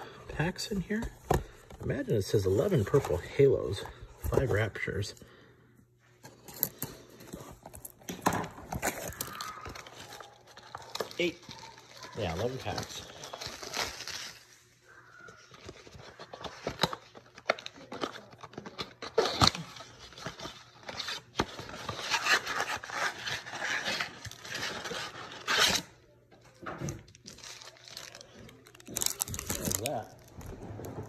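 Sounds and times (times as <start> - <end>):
packaging rustling: 6.2 - 14.6, 27.2 - 30.8
foil packs crinkling: 6.6 - 25.9, 27.1 - 30.6.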